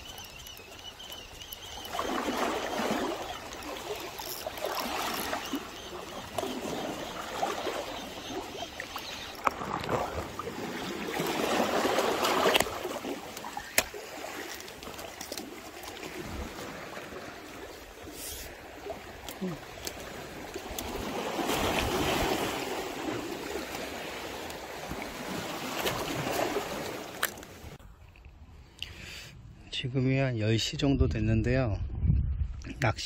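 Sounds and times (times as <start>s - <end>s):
sea waves washing over rocks: 1.9s - 17.4s, 20.0s - 27.6s.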